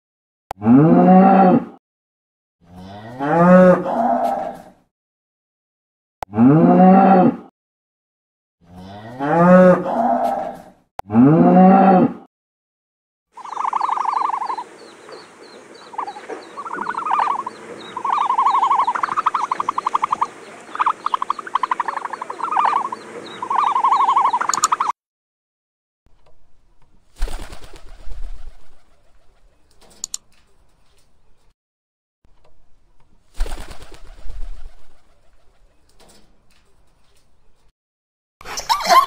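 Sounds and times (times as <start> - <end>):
cattle mooing: 2.7 - 4.6, 6.3 - 7.4, 8.7 - 12.2
turkey gobbling: 13.4 - 24.9.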